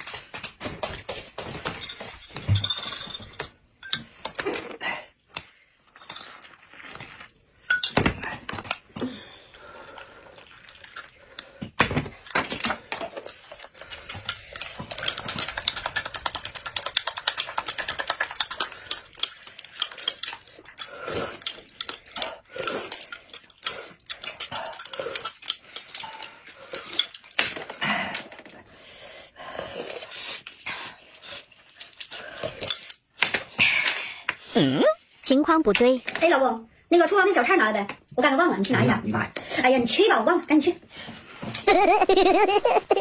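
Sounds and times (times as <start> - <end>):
spoons clinking against glass mugs: 7.7 - 8.0.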